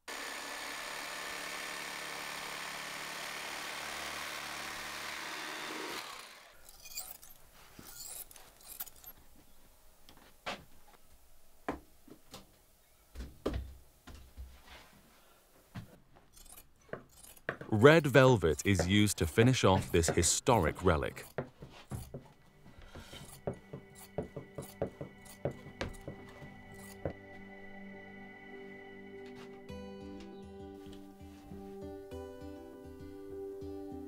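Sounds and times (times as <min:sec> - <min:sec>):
small motor running: 0:00.0 - 0:09.1
shears cutting fabric: 0:00.1 - 0:09.2, 0:16.2 - 0:22.4, 0:23.0 - 0:27.2.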